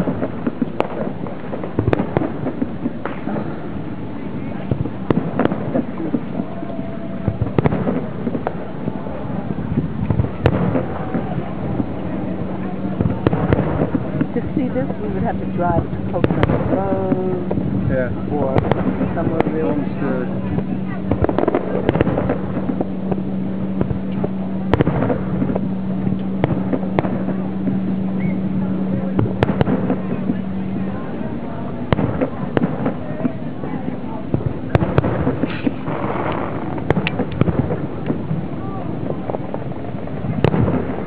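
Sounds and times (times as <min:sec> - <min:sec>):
fireworks launching and bursting: 0:00.0 - 0:41.0
low hum: 0:00.0 - 0:41.0
steady background rumble: 0:00.0 - 0:41.0
fireworks shells bursting: 0:34.3 - 0:41.0.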